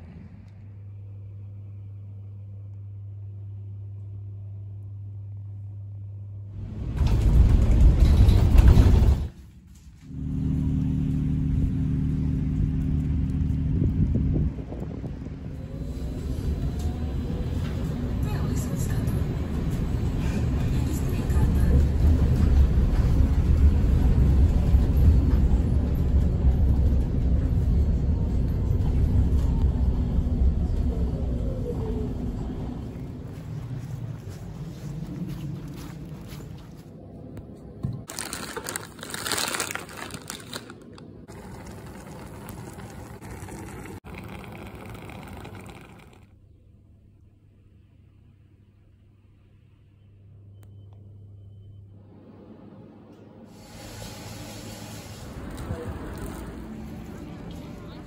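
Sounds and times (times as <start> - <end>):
steady low hum: 9.9 - 37.8
vehicle rumbling past: 10.1 - 18.2
vehicle rumble from inside cabin: 10.1 - 36.5.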